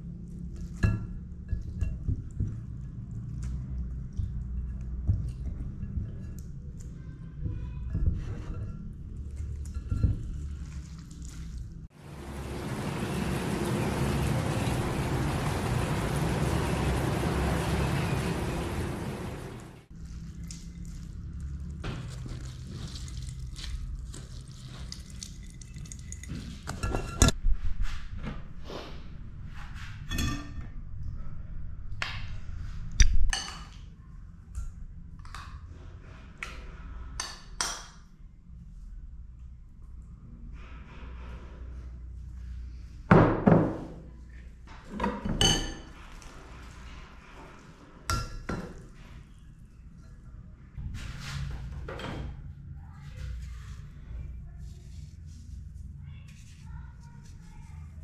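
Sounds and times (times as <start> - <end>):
rain falling on paving: 12.0 - 19.9.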